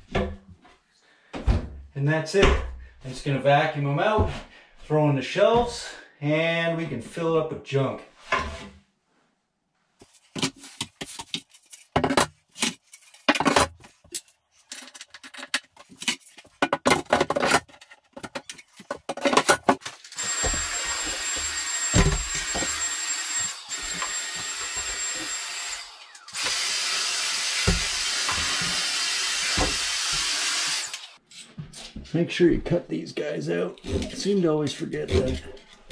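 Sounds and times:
shelves knocking and clattering: 0:01.4 - 0:02.9
handheld vacuum whining: 0:20.0 - 0:31.2.

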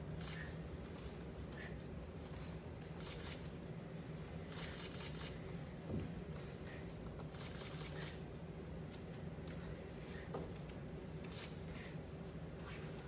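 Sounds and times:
bare feet sliding on mats: 0:11.6 - 0:13.0.

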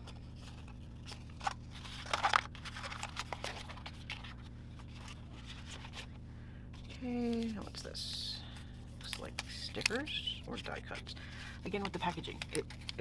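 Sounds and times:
paper packaging rustling: 0:00.0 - 0:06.2, 0:09.0 - 0:13.0
low steady hum: 0:00.0 - 0:13.0.

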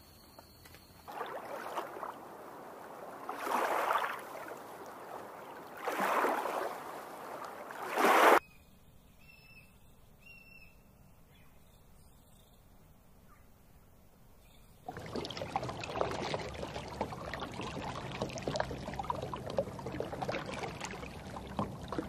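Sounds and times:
water sloshing: 0:01.1 - 0:08.4, 0:14.9 - 0:22.0.

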